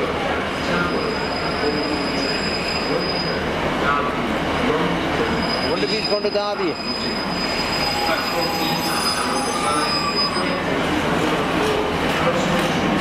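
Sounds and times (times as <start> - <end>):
train wheels squealing on rails: 0.6 - 3.6, 5.2 - 10.8.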